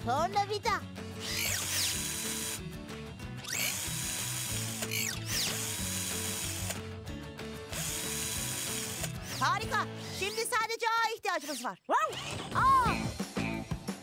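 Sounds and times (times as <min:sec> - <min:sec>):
background music: 0:00.0 - 0:11.2, 0:11.9 - 0:14.0
power screwdriver whirring: 0:01.2 - 0:02.6, 0:03.4 - 0:06.8, 0:07.7 - 0:10.5, 0:11.4 - 0:12.5.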